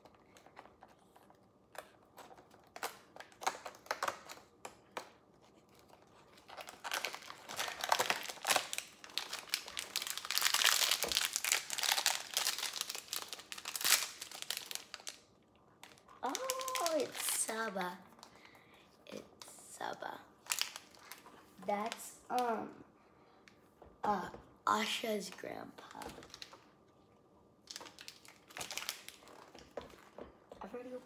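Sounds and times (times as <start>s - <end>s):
packaging crinkling: 0.0s - 18.6s, 20.4s - 22.0s, 25.8s - 26.7s, 27.6s - 30.2s.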